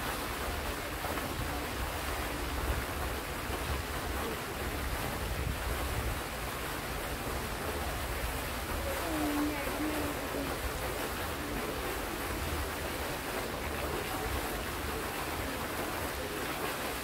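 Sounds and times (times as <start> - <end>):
fountain water splashing: 0.0 - 17.0
wind buffeting microphone: 1.3 - 10.9.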